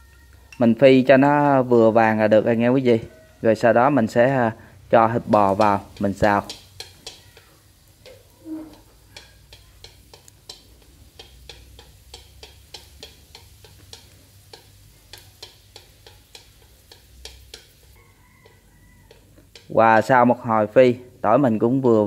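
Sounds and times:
garlic sizzling in oil: 0.0s - 22.0s
chopsticks clicking on wok: 3.6s - 20.2s.

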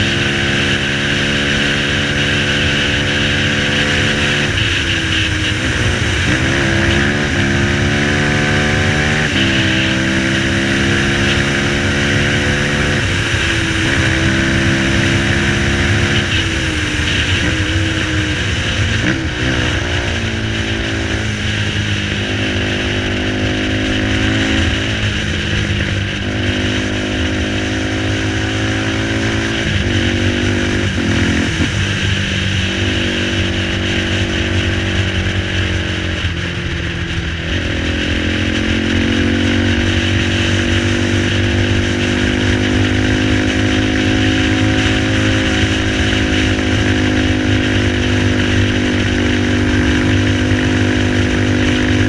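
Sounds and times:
quad engine running: 0.0s - 52.0s
wind rush on helmet camera: 0.0s - 52.0s.

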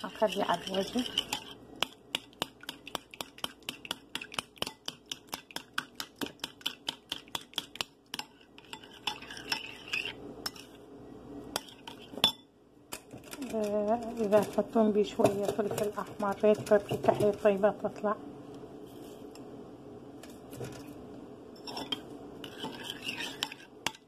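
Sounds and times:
utensil beating eggs in bowl: 0.0s - 10.8s, 13.2s - 17.6s, 21.6s - 24.0s.

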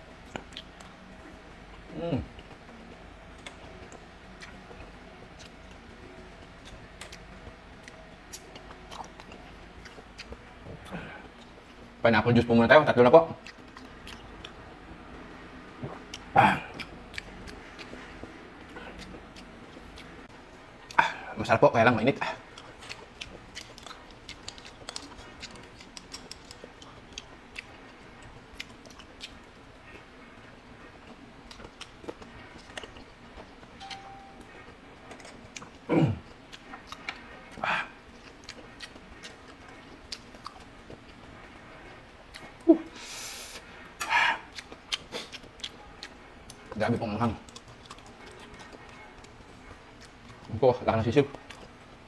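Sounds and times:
low steady hum: 0.0s - 52.0s
quiet chewing: 0.2s - 11.9s, 13.3s - 21.4s, 22.0s - 52.0s.

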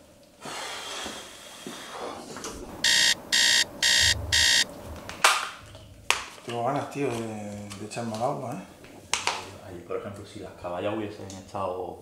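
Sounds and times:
electronic alarm beeping: 2.8s - 4.7s.

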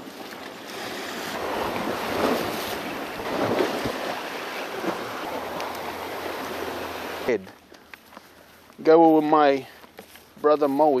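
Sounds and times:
waves splashing against rock: 0.0s - 7.5s
wind buffeting microphone: 1.4s - 7.3s.

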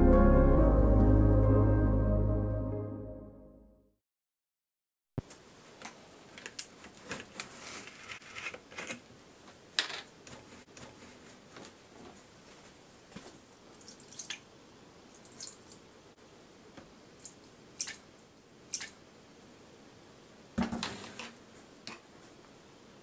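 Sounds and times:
liquid dripping: 13.7s - 14.5s, 15.1s - 15.9s, 17.2s - 18.0s.

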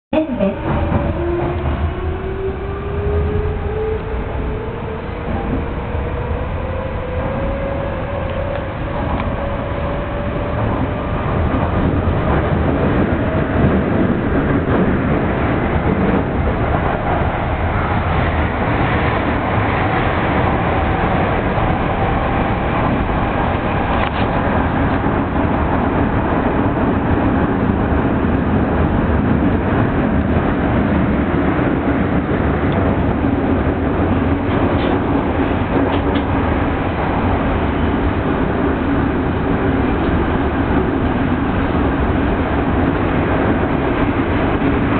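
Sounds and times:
train wheels rumbling on rails: 0.1s - 44.9s.

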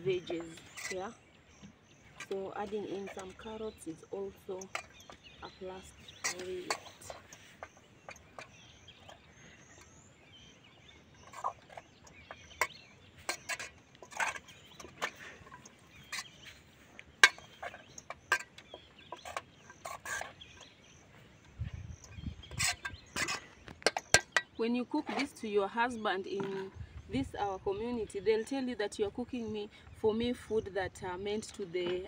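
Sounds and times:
metal spoon clinking against pot: 2.2s - 10.0s, 11.2s - 16.5s, 17.2s - 20.7s, 22.0s - 25.3s.

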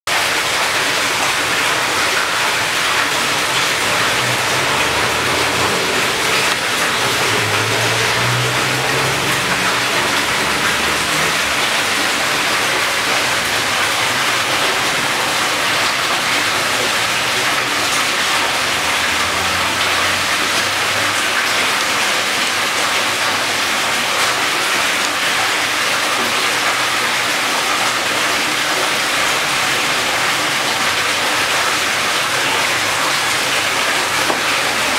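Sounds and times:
aerated water bubbling in fish tanks: 0.1s - 34.9s.

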